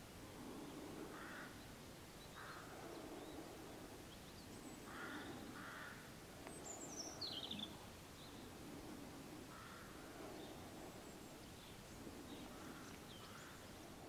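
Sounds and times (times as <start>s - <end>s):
low steady background hum: 0.0s - 14.0s
crows cawing: 1.1s - 1.6s, 2.4s - 2.9s, 4.8s - 6.1s, 9.5s - 10.2s, 12.5s - 13.6s.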